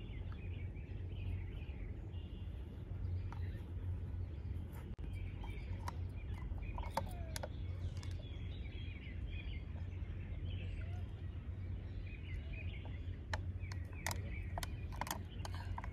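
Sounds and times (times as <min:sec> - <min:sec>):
low background rumble: 0:00.0 - 0:15.9
small birds chirping: 0:00.0 - 0:15.9
sharp clicks: 0:12.8 - 0:15.9.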